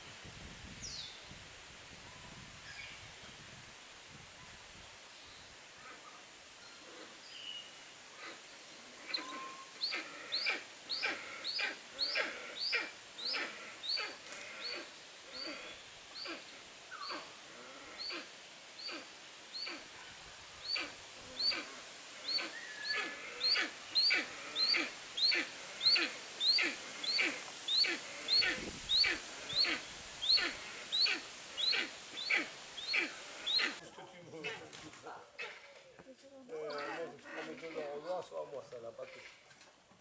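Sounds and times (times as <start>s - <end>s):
eagle calling harshly: 9.1s - 16.4s, 20.6s - 33.8s.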